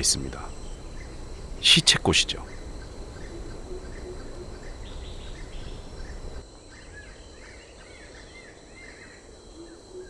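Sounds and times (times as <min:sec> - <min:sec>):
bird chirping: 0:00.0 - 0:10.0
high insect drone: 0:00.0 - 0:10.0
low background hiss: 0:00.0 - 0:10.0.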